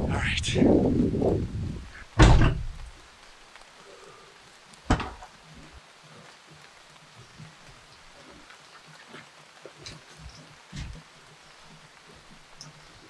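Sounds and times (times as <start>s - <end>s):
faint rain: 0.0s - 13.0s
heavy thump: 2.2s - 2.8s.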